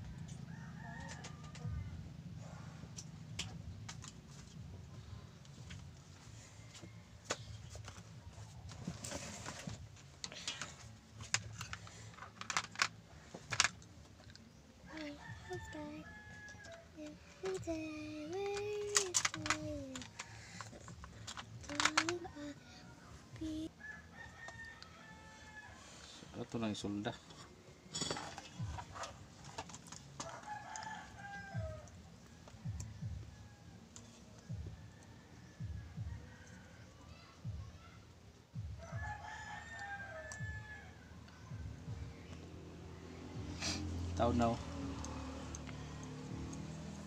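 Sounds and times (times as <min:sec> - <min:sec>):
rooster crowing: 0:00.2 - 0:02.6, 0:23.8 - 0:26.2, 0:30.2 - 0:37.2, 0:38.8 - 0:41.6.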